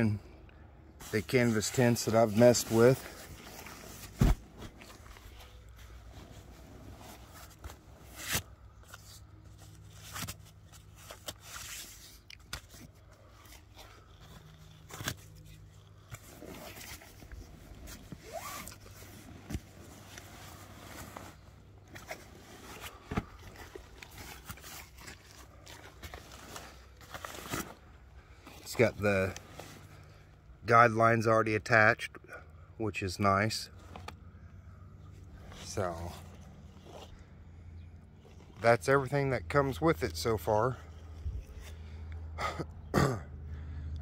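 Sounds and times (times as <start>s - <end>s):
canvas rustling and scraping: 0.9s - 30.3s, 35.0s - 37.4s.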